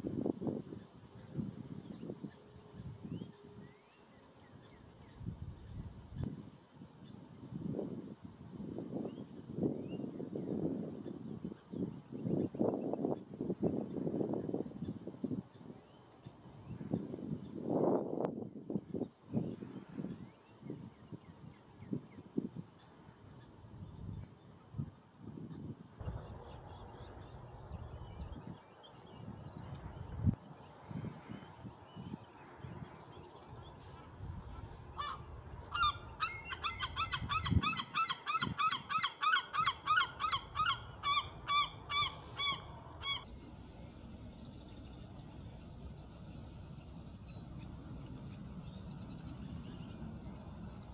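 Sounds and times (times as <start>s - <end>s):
osprey chirping calls: 35.8s - 43.2s.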